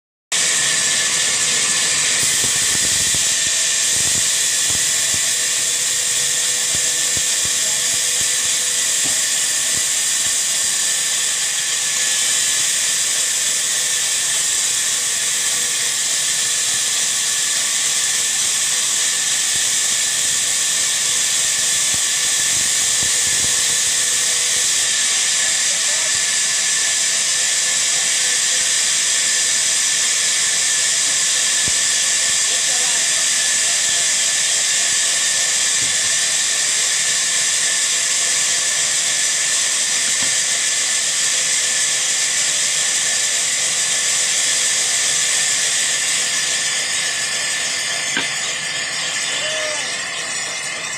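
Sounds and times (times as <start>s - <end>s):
band saw cutting wood: 0.3s - 50.9s.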